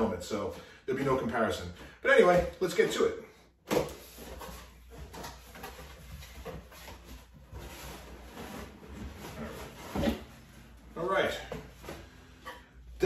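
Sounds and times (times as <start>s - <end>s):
cardboard flaps scraping and rustling: 3.9s - 12.3s.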